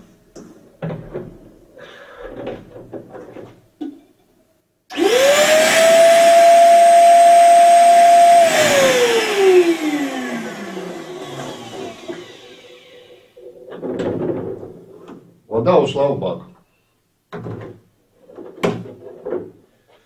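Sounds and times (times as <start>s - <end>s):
shop vacuum motor whine: 4.9s - 13.3s.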